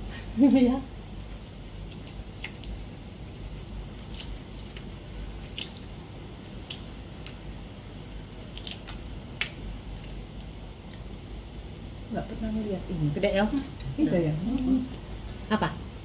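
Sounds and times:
prawn shell crackling and snapping: 1.2 - 11.2.

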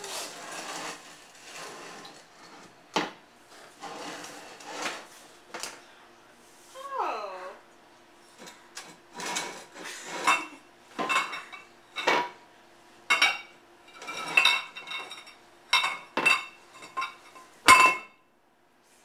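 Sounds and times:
metal bowls clanking on tile: 8.4 - 12.4, 13.1 - 18.2.

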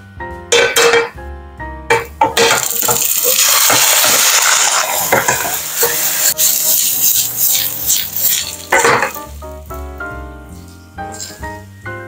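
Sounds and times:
omelette sizzling in hot oil: 2.6 - 9.3.

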